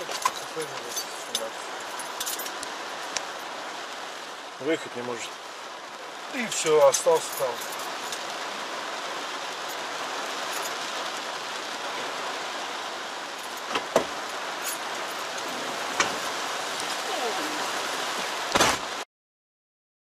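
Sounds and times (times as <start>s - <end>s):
rain drumming on car roof: 0.0s - 19.0s
sharp knocks: 13.7s - 14.2s.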